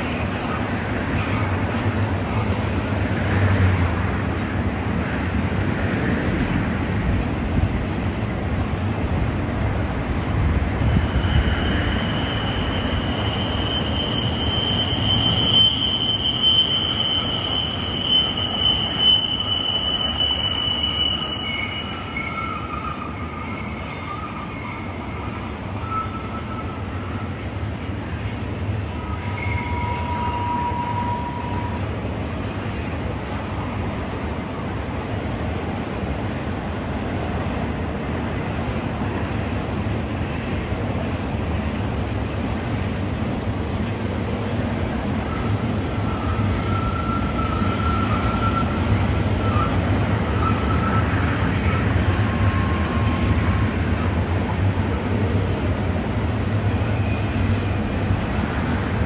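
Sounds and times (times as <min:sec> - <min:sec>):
train wheels rumbling on rail: 0:00.0 - 0:59.0
wheel flanges squealing: 0:10.9 - 0:26.8, 0:43.9 - 0:53.6.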